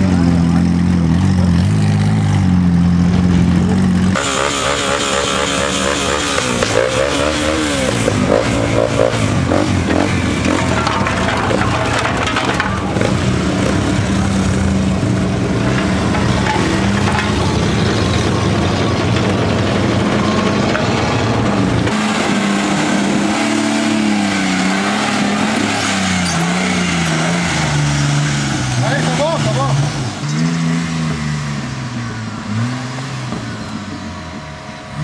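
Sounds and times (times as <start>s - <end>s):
engine revving in mud: 0.0s - 35.0s
steady engine drone: 0.0s - 35.0s.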